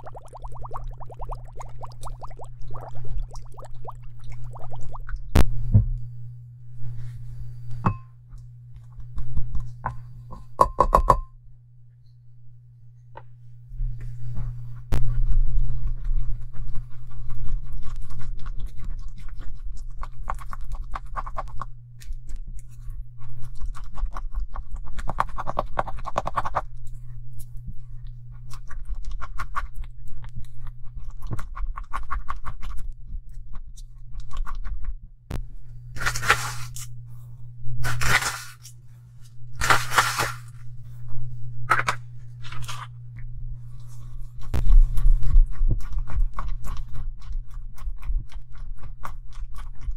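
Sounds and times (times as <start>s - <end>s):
low steady hum: 0.0s - 49.9s.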